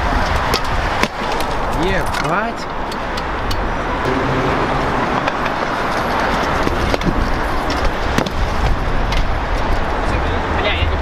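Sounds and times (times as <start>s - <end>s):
city street traffic noise: 0.0s - 11.0s.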